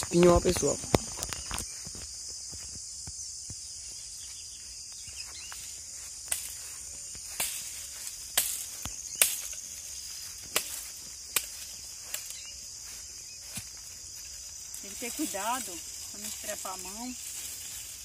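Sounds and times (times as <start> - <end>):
branches cracking and snapping: 0.0 - 2.1, 6.2 - 12.5
high insect drone: 0.0 - 18.0.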